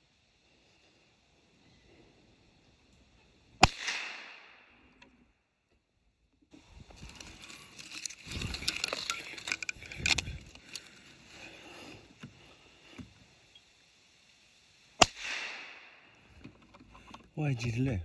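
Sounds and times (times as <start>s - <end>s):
leaves rustling: 6.5s - 16.5s.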